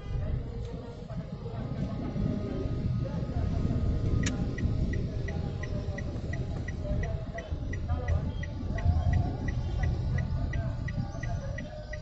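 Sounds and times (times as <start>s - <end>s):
car and traffic rumble: 0.0s - 12.0s
turn signal ticking: 3.6s - 12.0s.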